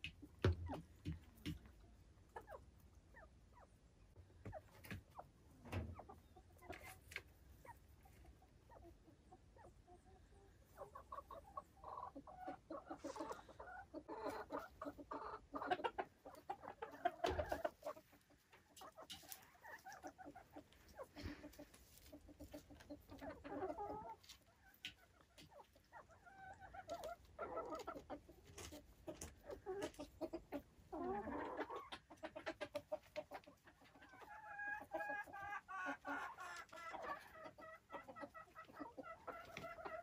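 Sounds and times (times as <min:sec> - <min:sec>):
chickens clucking: 0:00.0 - 0:40.0.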